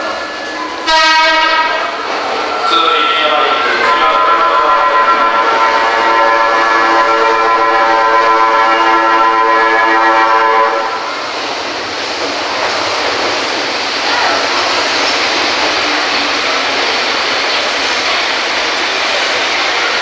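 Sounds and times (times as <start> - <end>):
train running into station: 0.0 - 20.0
train music horn chord: 0.8 - 1.9, 3.8 - 11.1.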